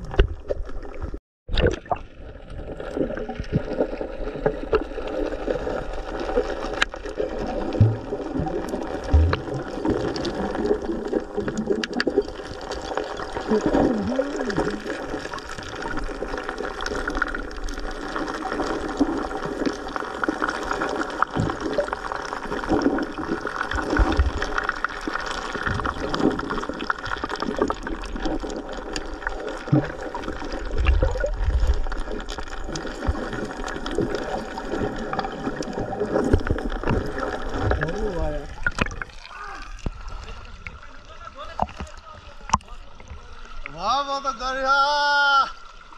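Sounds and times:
muffled underwater gurgling: 0:07.2 - 0:25.0, 0:25.6 - 0:43.8.

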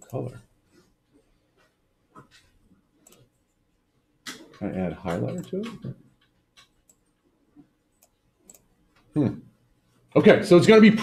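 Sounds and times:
faint computer mouse clicks: 0:03.0 - 0:03.3, 0:06.2 - 0:07.1, 0:08.0 - 0:09.1.

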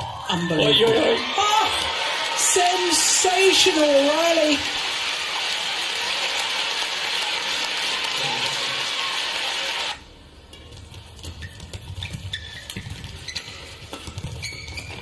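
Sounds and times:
crowd clapping: 0:00.1 - 0:10.0.

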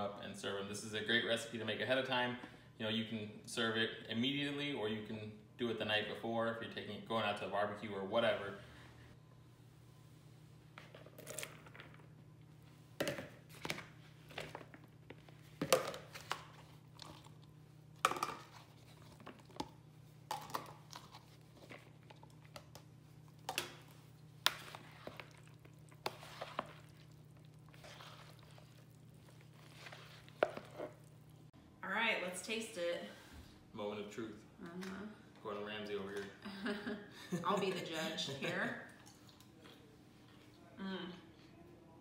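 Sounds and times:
low steady hum: 0:00.0 - 0:42.0
spoon stirring in a bowl: 0:18.0 - 0:31.2.

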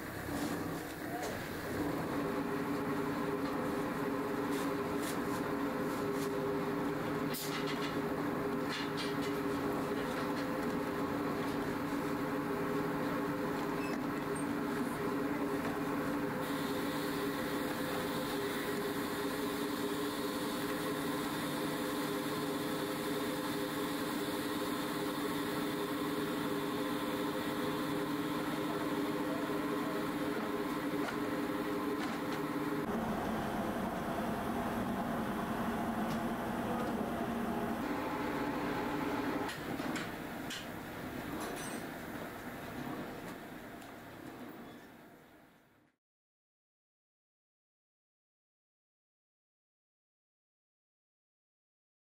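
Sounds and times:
factory machinery humming: 0:00.0 - 0:44.1.

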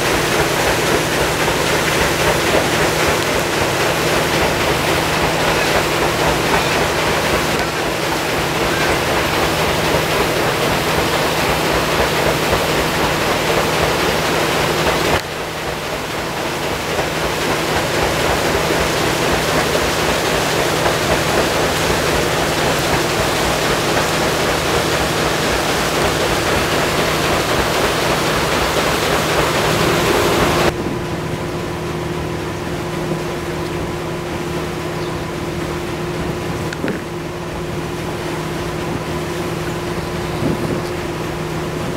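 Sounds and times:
loud rushing water: 0:00.0 - 0:41.9
low machinery hum: 0:00.0 - 0:41.9.

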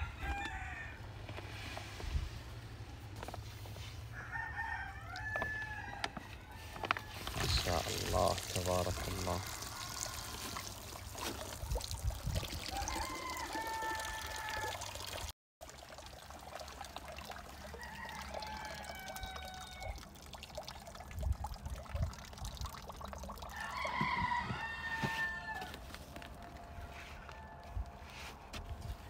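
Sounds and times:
rooster crowing: 0:00.0 - 0:01.1, 0:04.1 - 0:07.3, 0:08.9 - 0:10.6, 0:12.7 - 0:15.0, 0:17.7 - 0:20.0, 0:23.5 - 0:28.3
water dripping and trickling: 0:06.8 - 0:26.7.

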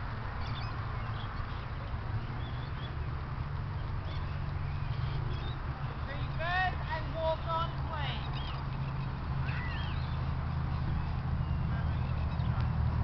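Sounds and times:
low rumble and hiss: 0:00.0 - 0:13.0
faint high bird chirps: 0:03.8 - 0:05.6, 0:08.2 - 0:10.3.

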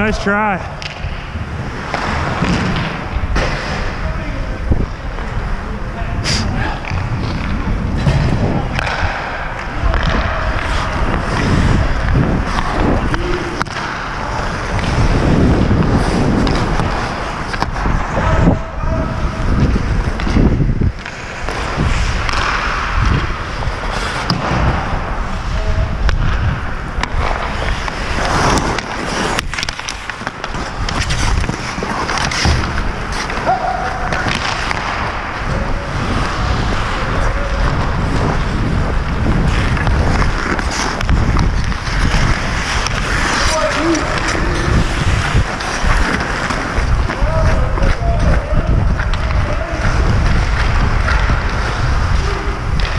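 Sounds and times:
ice skate blades scraping ice: 0:06.2 - 0:18.6, 0:19.2 - 0:52.9.

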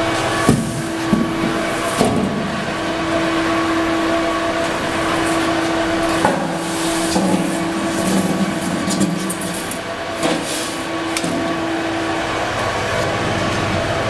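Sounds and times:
sorting machine hum: 0:00.0 - 0:14.0
handling knocks: 0:00.4 - 0:02.9.

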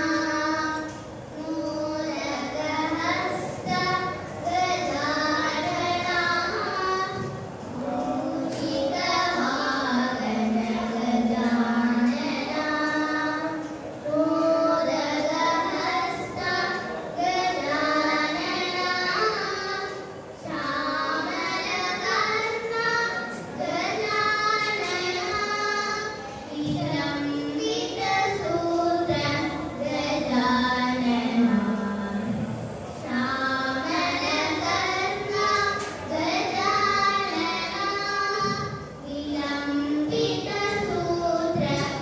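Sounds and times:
girls singing classical vocals: 0:00.0 - 0:42.0.

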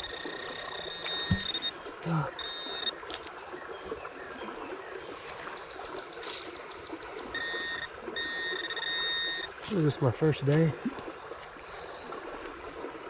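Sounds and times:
metal detector probe beeping: 0:00.0 - 0:03.1, 0:07.3 - 0:09.6.

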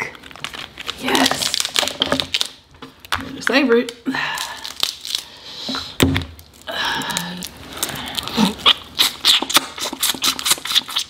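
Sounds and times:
chewing close to microphone: 0:07.1 - 0:11.0.

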